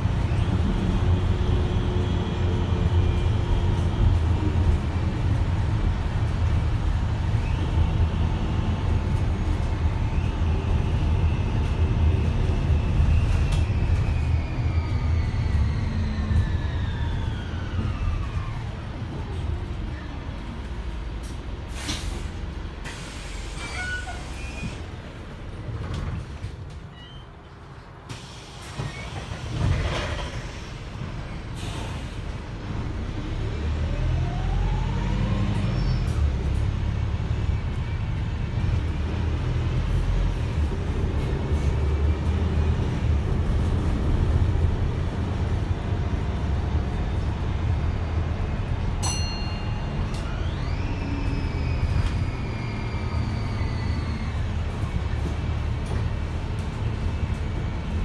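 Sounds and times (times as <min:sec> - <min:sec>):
bus diesel engine: 0:00.0 - 0:58.0.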